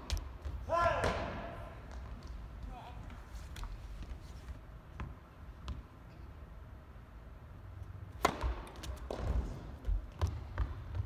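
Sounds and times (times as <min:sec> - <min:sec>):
racket striking tennis ball: 0:08.1 - 0:09.6.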